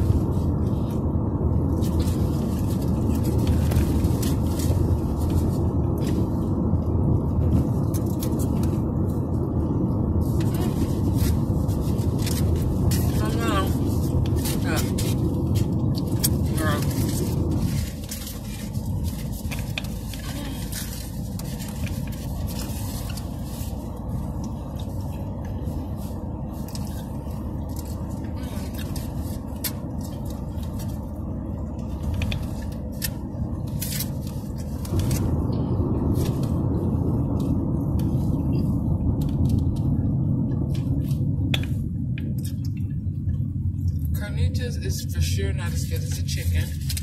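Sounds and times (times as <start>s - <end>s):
car rumble from inside: 0.0s - 47.0s
foil crinkling while eating: 10.3s - 35.4s.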